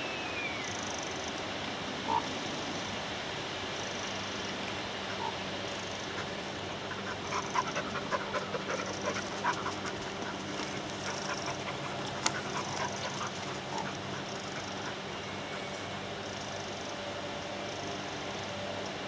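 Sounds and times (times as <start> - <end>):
steady hiss: 0.0 - 19.0
ravens croaking: 4.9 - 16.9.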